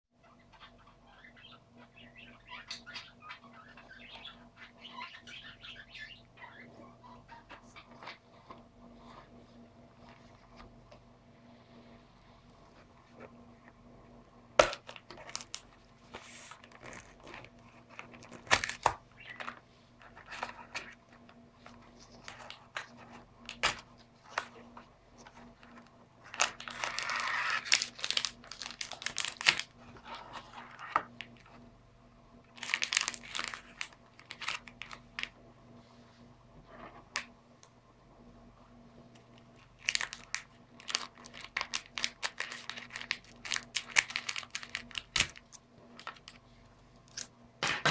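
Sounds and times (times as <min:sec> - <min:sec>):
plastic packet crinkling: 0:16.3 - 0:21.0, 0:25.2 - 0:31.5, 0:32.5 - 0:35.3, 0:39.6 - 0:46.4
scissors cutting plastic: 0:17.2 - 0:19.6, 0:26.3 - 0:29.7, 0:39.8 - 0:46.3.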